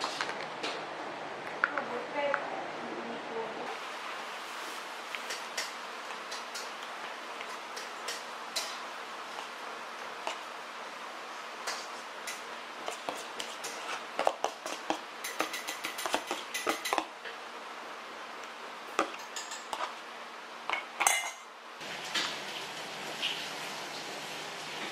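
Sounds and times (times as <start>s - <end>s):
spoon scraping and tapping bowl: 11.7s - 17.1s.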